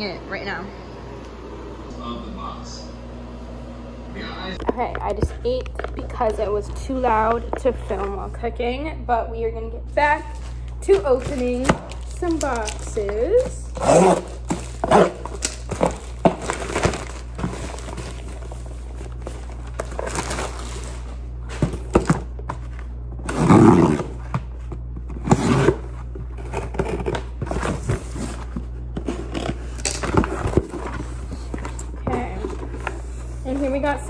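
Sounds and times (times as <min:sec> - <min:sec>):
steady low hum: 0:00.0 - 0:34.0
cardboard box rustling and scraping: 0:25.1 - 0:34.0.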